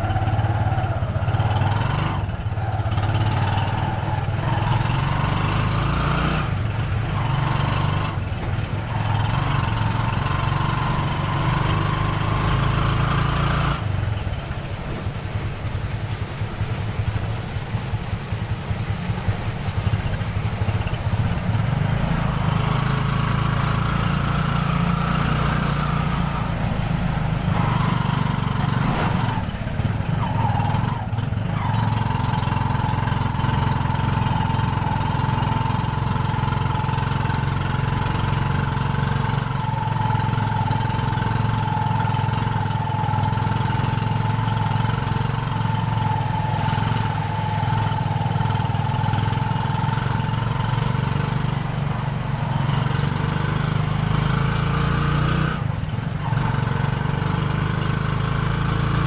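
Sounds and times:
motorcycle engine running: 0.0s - 59.0s.

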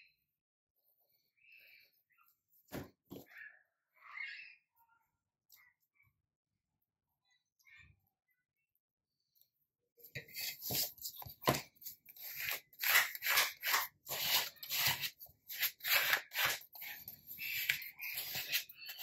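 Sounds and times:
plastic tool rubbing on paper: 10.2s - 19.0s.

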